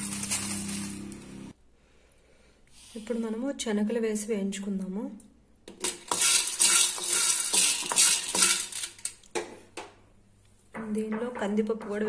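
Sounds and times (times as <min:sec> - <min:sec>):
chickpeas rattling in metal pan: 0:05.8 - 0:09.2.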